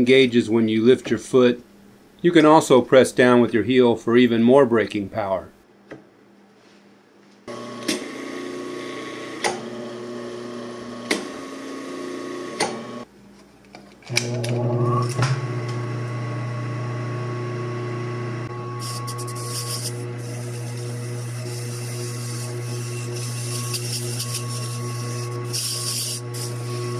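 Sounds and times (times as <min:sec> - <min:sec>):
sewing machine motor humming: 0:17.6 - 0:26.9
wire brush scrubbing: 0:18.8 - 0:26.9.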